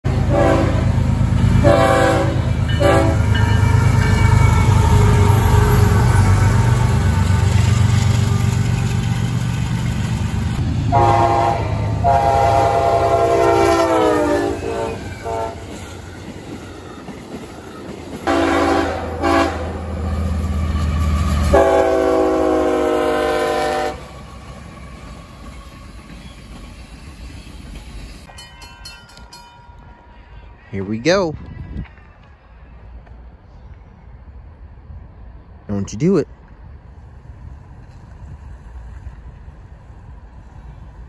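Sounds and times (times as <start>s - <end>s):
diesel locomotives rumbling past: 0.0s - 41.0s
locomotive air horn blasts: 0.1s - 1.0s, 1.6s - 6.6s, 10.9s - 15.8s, 18.3s - 19.9s, 21.4s - 24.1s
railroad crossing bell ringing: 2.4s - 6.7s, 28.0s - 30.5s.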